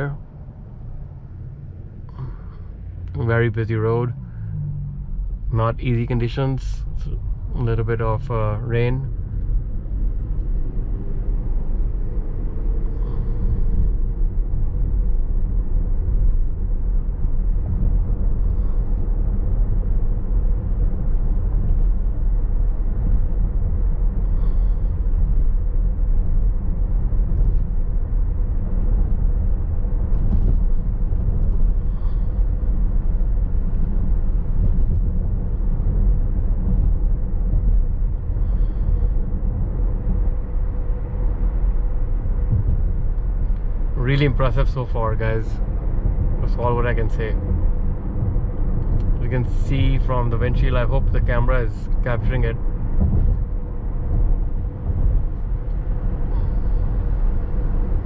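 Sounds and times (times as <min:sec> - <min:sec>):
road and tyre noise in car cabin: 0:00.0 - 0:58.0.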